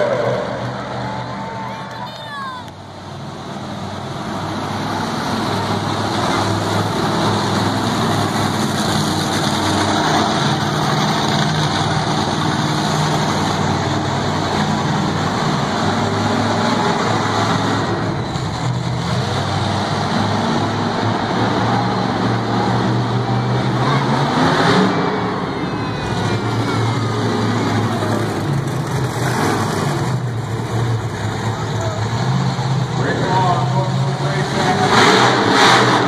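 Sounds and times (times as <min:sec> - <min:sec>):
monster truck engine running: 0:02.7 - 0:36.0.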